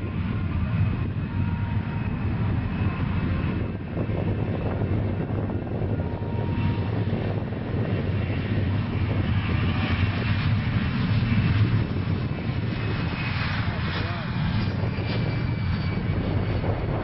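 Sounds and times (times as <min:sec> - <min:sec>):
jet engines roaring at high power: 0:00.0 - 0:17.0.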